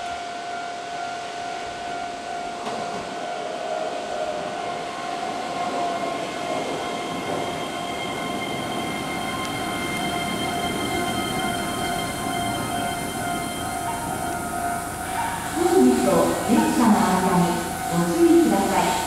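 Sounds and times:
train wheels rumbling: 1.7 - 19.0
high-pitched whining tones: 4.1 - 19.0.

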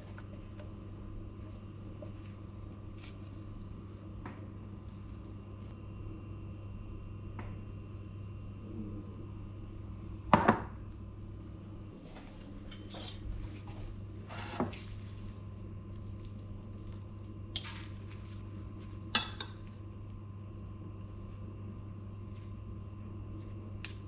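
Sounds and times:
steady low hum: 0.0 - 24.0
cutlery clinking and scraping on plate: 12.4 - 13.3.

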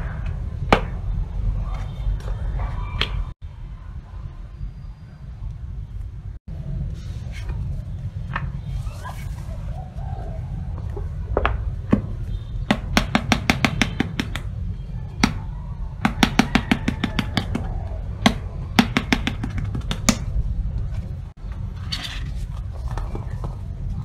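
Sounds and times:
fingertips tapping on book cover: 16.2 - 20.3.

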